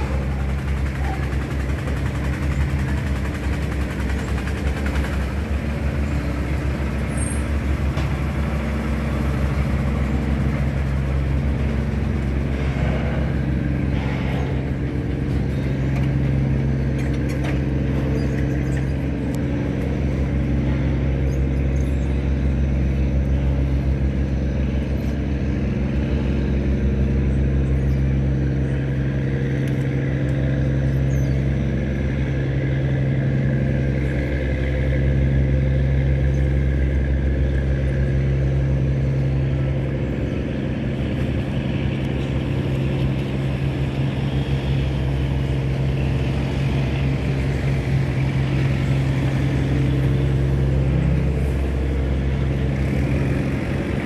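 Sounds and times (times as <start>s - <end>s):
machine humming: 31.6s - 54.0s.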